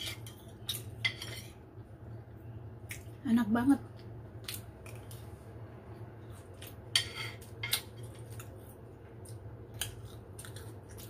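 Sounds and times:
low steady hum: 0:00.0 - 0:11.0
metal spoon scraping glass plate: 0:01.0 - 0:01.6, 0:06.9 - 0:07.8.

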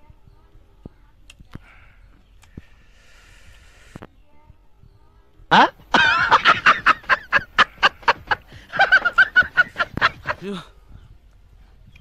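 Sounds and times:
person laughing in pulses: 0:05.5 - 0:10.6.

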